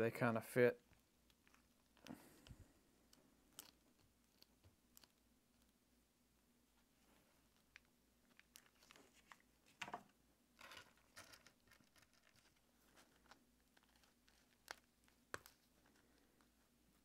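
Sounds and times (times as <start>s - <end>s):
plastic pieces clicking: 3.5s - 5.2s
plastic pieces rustling: 10.6s - 14.9s.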